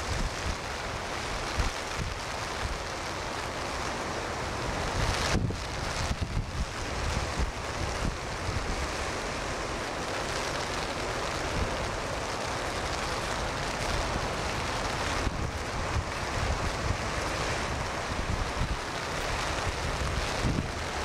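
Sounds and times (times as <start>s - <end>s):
heavy surf breaking: 0.0s - 21.0s
wind buffeting microphone: 4.7s - 9.0s, 13.6s - 21.0s.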